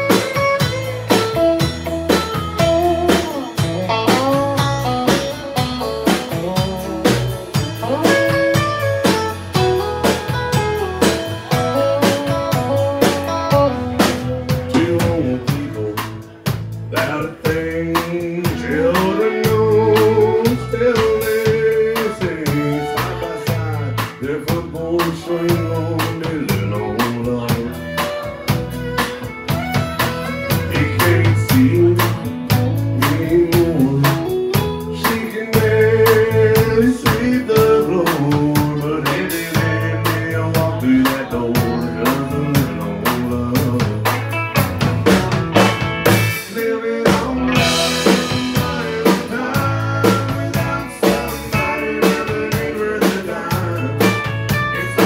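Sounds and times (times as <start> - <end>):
fiddle: 0.0 - 33.4
acoustic guitar: 0.0 - 55.0
drum kit: 0.0 - 55.0
electric bass: 0.0 - 55.0.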